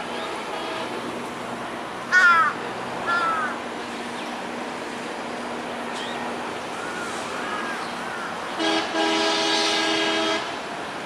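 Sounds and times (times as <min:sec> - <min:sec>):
diesel locomotive humming: 0:00.0 - 0:11.0
crow cawing: 0:02.1 - 0:03.6, 0:06.8 - 0:08.4.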